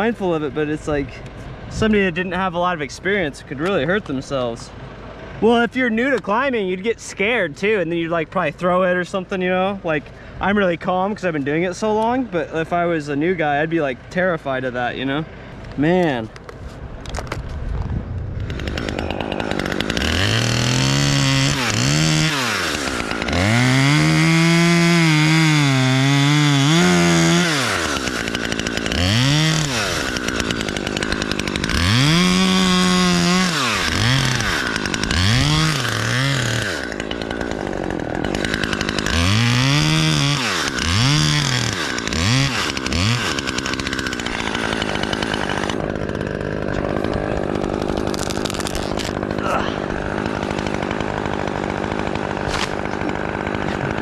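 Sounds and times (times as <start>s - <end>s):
chainsaw revving through wood: 18.4s - 54.0s.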